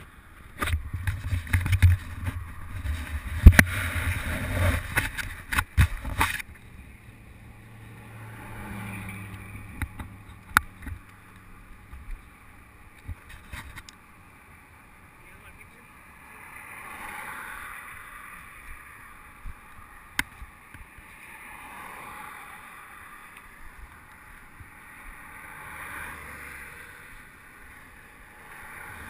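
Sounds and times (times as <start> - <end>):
road traffic passing: 0.0 - 29.0
camera handling rumble and knocks: 0.4 - 6.6.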